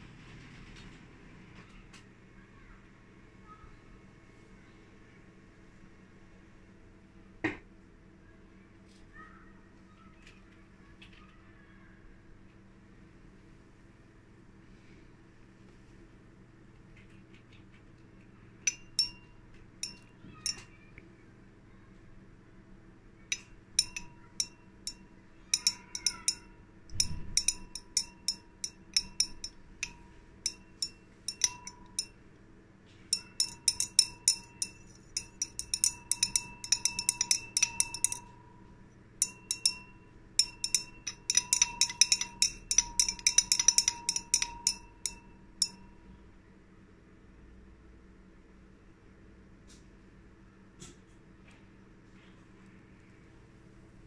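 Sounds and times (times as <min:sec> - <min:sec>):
glass rod clinking in beaker: 0:18.7 - 0:20.7, 0:23.3 - 0:32.2, 0:33.1 - 0:45.9.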